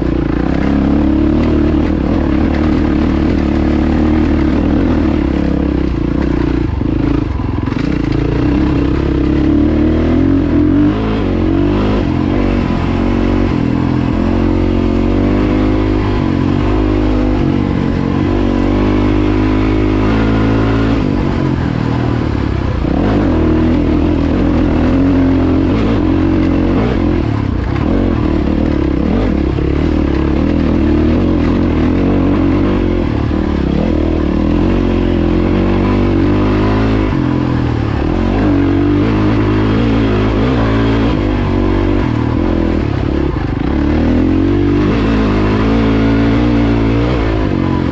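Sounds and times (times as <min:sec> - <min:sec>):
dirt bike engine running: 0:00.0 - 0:47.9.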